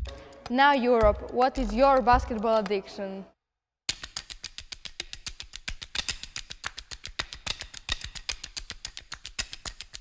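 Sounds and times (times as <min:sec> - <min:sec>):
fast sharp taps: 0:03.9 - 0:10.0.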